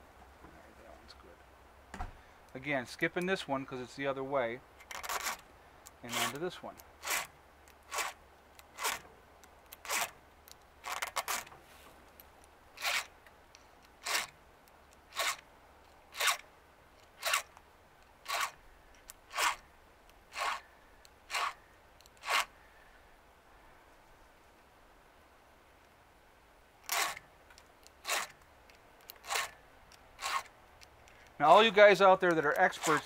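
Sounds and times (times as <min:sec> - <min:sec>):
file rasping on chainsaw chain: 0:04.9 - 0:05.4, 0:06.0 - 0:09.0, 0:09.8 - 0:10.2, 0:12.8 - 0:13.1, 0:14.0 - 0:14.4, 0:15.1 - 0:15.4, 0:16.1 - 0:16.4, 0:17.2 - 0:17.5, 0:18.2 - 0:18.6, 0:19.3 - 0:19.6, 0:20.3 - 0:20.7, 0:21.3 - 0:22.5, 0:26.9 - 0:27.2, 0:28.0 - 0:28.4, 0:29.1 - 0:29.6, 0:30.2 - 0:30.5, 0:32.3 - 0:33.0.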